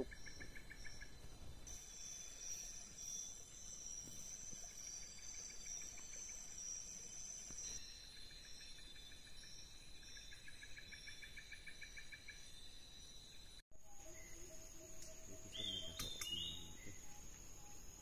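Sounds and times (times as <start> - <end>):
high insect drone: 0.0 - 18.0
insect trills: 0.0 - 18.0
rapid pulsing insect chirp: 0.0 - 18.0
bird whistles and calls: 15.4 - 17.1.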